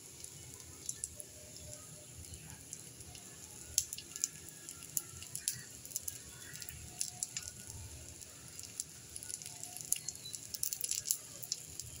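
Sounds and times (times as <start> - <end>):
food sizzling in a pan: 0.0 - 12.0
sharp crackles and pops: 0.0 - 12.0.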